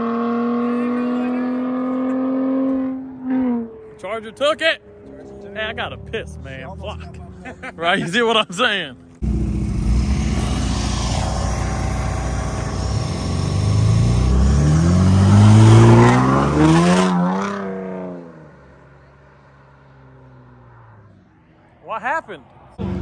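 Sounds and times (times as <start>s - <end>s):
car engine accelerating hard: 0.0s - 4.1s, 9.1s - 21.1s, 22.8s - 23.0s.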